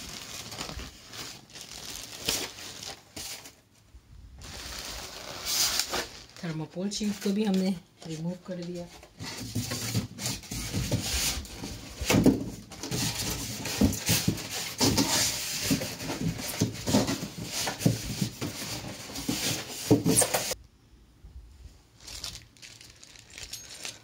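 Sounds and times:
packaging rustling and knocking: 0:09.1 - 0:20.6.

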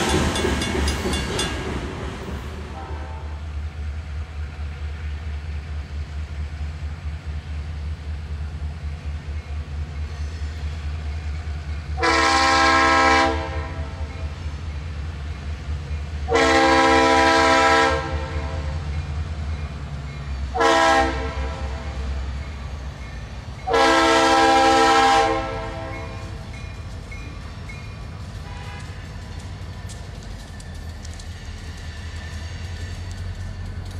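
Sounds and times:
locomotive horn blasts: 0:02.7 - 0:03.4, 0:12.0 - 0:14.0, 0:16.3 - 0:18.7, 0:20.5 - 0:22.0, 0:23.6 - 0:26.4, 0:28.4 - 0:29.0.

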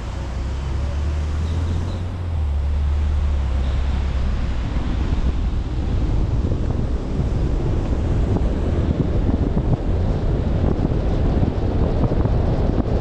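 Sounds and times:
car engine and tyres rumbling: 0:00.0 - 0:13.0
wet road and wind noise: 0:00.0 - 0:13.0.

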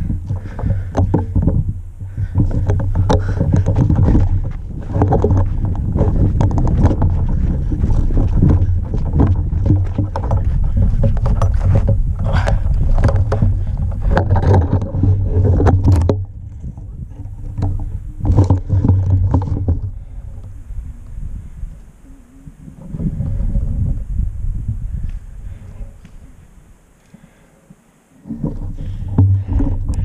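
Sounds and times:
gear jostling: 0:00.0 - 0:20.2
thuds: 0:00.0 - 0:20.2, 0:28.3 - 0:30.0
heavy low rumble: 0:00.0 - 0:26.8
rustling brush: 0:00.0 - 0:30.0
quick footfalls in dry grass: 0:01.5 - 0:15.6.

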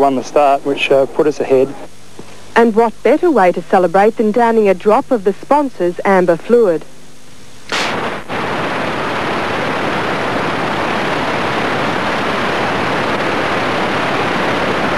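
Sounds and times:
videotape static hiss: 0:00.0 - 0:14.9
short burst of noise: 0:07.4 - 0:10.7.

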